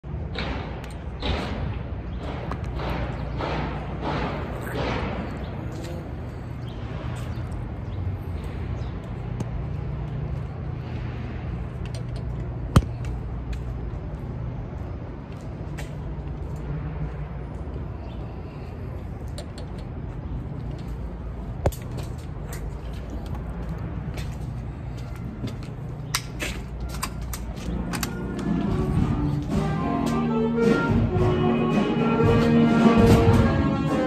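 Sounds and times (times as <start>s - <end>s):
low city rumble: 0.0s - 34.0s.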